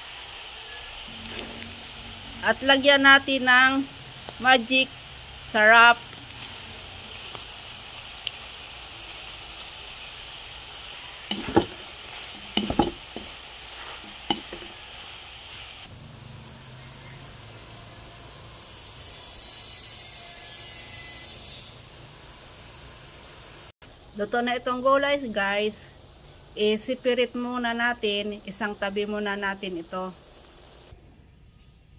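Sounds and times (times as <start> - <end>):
food sizzling in a wok: 0.0 - 31.0
sharp knocks against pan: 11.3 - 11.8, 12.4 - 13.3, 14.3 - 14.8.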